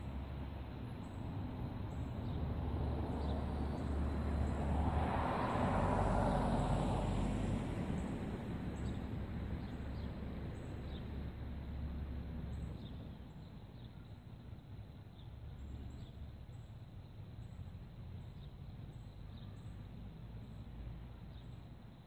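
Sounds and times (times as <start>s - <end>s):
passing car tyre rush: 2.6s - 9.3s.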